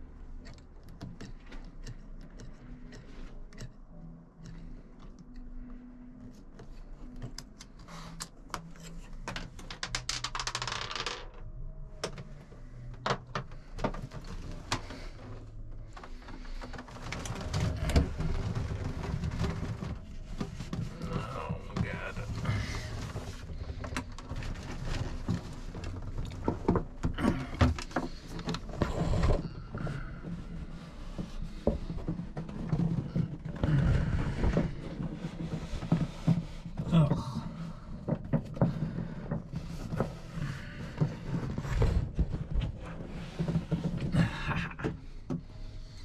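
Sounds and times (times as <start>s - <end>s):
knocks and scrapes: 12.0s - 46.0s.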